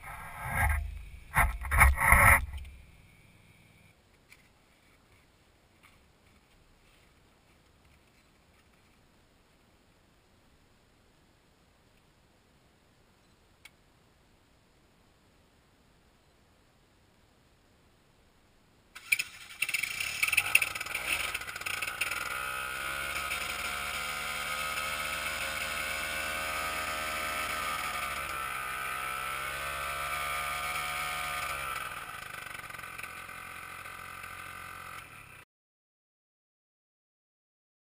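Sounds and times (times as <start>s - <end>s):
small engine starting and running: 19.0s - 35.4s.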